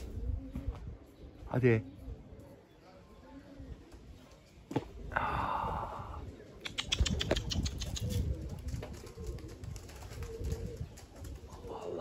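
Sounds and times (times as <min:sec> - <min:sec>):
pigeon cooing: 0:04.9 - 0:12.0
wind on microphone: 0:05.1 - 0:12.0
sharp wing claps: 0:06.6 - 0:08.2
pigeon wings flapping: 0:06.7 - 0:12.0.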